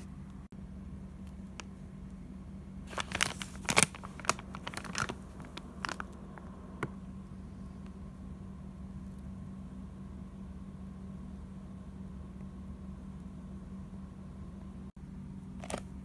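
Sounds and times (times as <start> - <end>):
steady low hum: 0.0 - 16.0
plastic packet crinkling: 2.9 - 6.2, 15.6 - 15.9.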